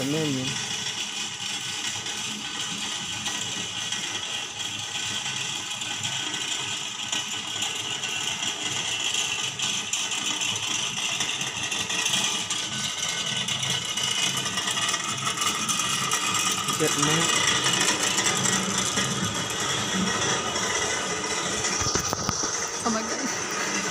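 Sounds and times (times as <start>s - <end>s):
chairlift cable rattling over wheels: 0.0s - 23.9s.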